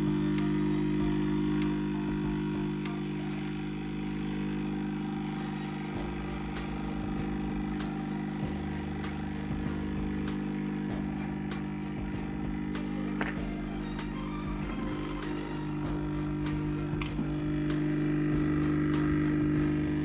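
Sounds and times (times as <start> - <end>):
hot air gun fan hum: 0.0 - 20.0.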